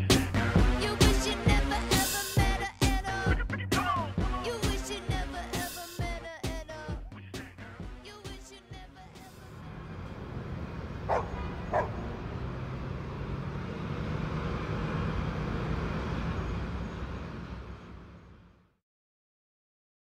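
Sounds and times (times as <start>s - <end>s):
sharp yelps: 11.1s - 12.0s.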